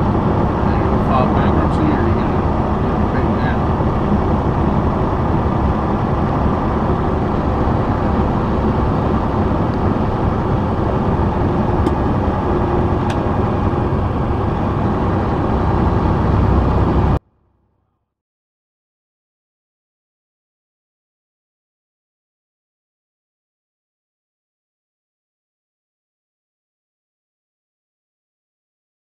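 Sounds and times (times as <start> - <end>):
truck engine and road noise: 0.0 - 18.0.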